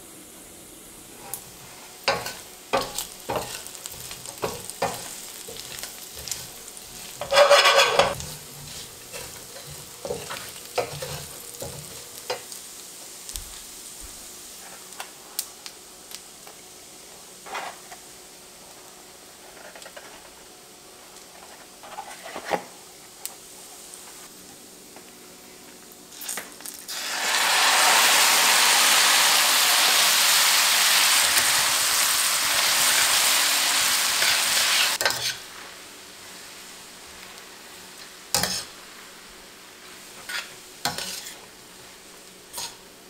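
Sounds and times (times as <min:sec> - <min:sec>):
wooden spatula scraping: 0:01.1 - 0:12.4, 0:21.3 - 0:22.7, 0:40.2 - 0:41.5
pork sizzling in a skillet: 0:01.1 - 0:20.0, 0:26.1 - 0:43.0.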